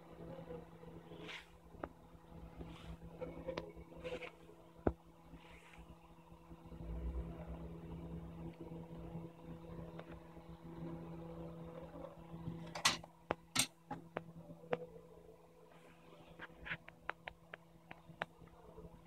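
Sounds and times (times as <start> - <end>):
electrical hum: 0.0 - 19.0
small tools clicking and tapping: 12.7 - 14.8.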